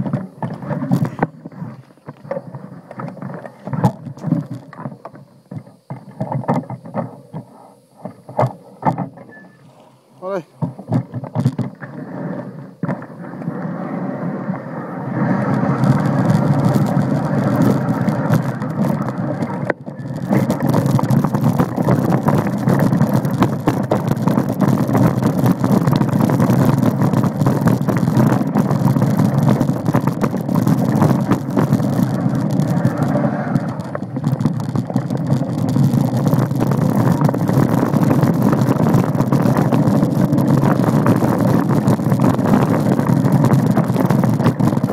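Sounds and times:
bike tyres rushing and rattling: 0:00.0 - 0:44.9
wind buffeting microphone: 0:13.8 - 0:44.9.

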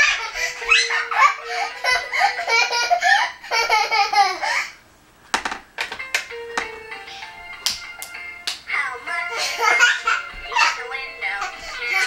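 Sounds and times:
young children laughing: 0:00.0 - 0:04.8, 0:09.3 - 0:12.0.

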